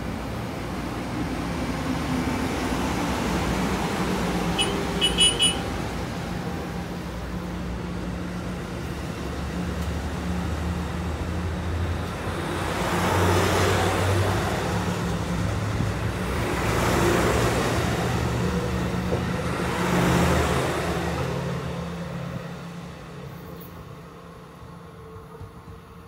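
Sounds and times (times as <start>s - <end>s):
train cars rumbling past: 0.0s - 26.0s
short high beeps: 4.6s - 5.6s.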